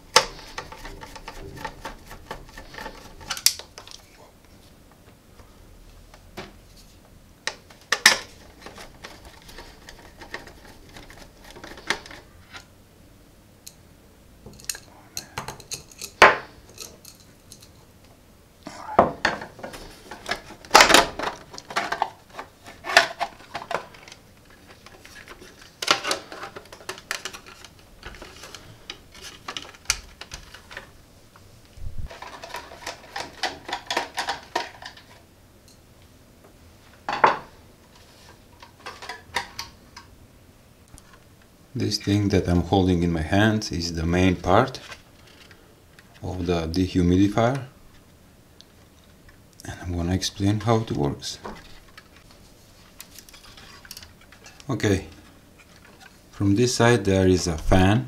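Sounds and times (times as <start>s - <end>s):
plastic parts rattling: 0.1s - 4.1s, 7.6s - 12.6s, 19.2s - 30.9s, 32.1s - 35.2s, 38.6s - 39.7s, 52.9s - 56.2s.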